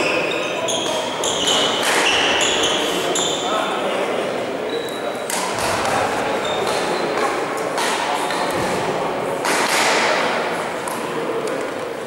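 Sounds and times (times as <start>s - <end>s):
murmur of background chatter: 0.0s - 12.0s
rackets striking shuttlecock: 9.4s - 10.2s.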